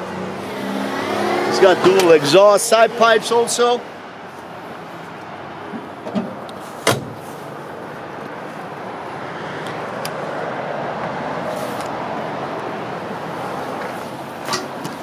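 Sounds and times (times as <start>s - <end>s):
vehicle going by: 0.0s - 5.7s.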